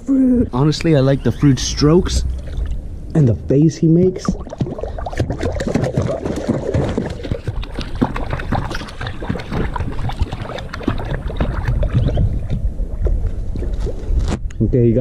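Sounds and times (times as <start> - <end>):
dog splashing in water: 4.2 - 12.6.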